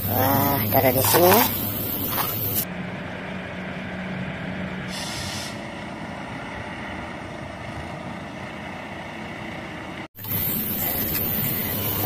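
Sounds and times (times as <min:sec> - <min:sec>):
truck diesel engine running: 0:00.0 - 0:12.0
air brake hiss: 0:04.9 - 0:05.7.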